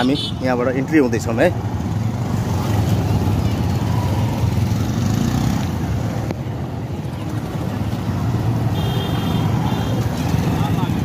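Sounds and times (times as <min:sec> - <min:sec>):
vehicle horn beep: 0:08.7 - 0:10.0.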